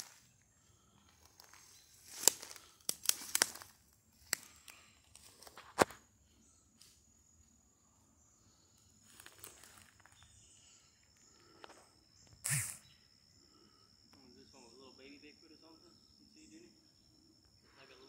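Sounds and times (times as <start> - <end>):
footsteps on forest floor: 0.0 - 6.0, 9.0 - 10.5.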